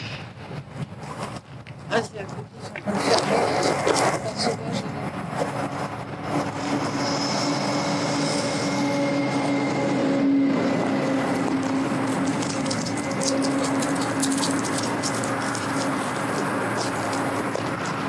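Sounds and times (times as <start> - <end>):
footsteps on gravel: 11.0 - 18.0.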